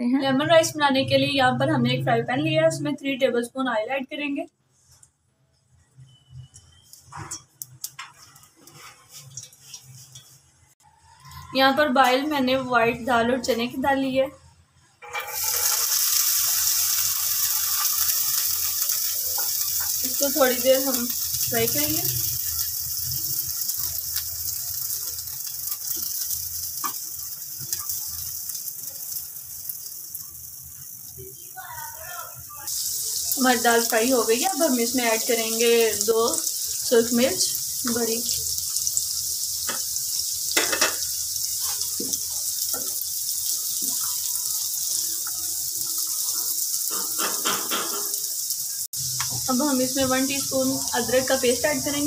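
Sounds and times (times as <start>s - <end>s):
lentils sizzling in hot oil: 6.0s - 12.3s, 15.0s - 52.0s
soft stirring: 6.5s - 10.6s
spatula scraping and tapping pan: 15.0s - 15.8s, 25.8s - 28.0s, 40.5s - 43.0s, 46.8s - 48.2s.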